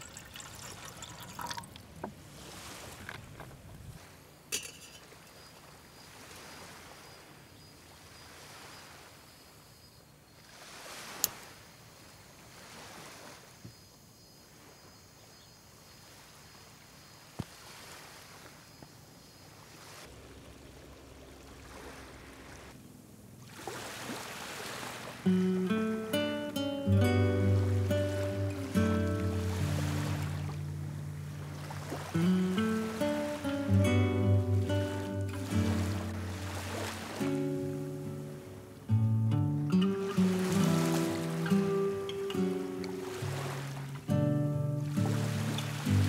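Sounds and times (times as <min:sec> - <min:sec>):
faint surf on a beach: 0:00.0 - 0:46.0.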